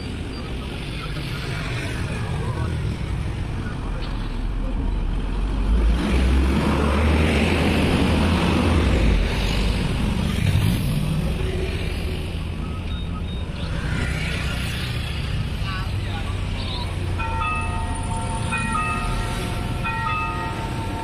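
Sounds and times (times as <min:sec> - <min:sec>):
road traffic: 0:00.0 - 0:21.0
motorcycles passing: 0:05.2 - 0:21.0.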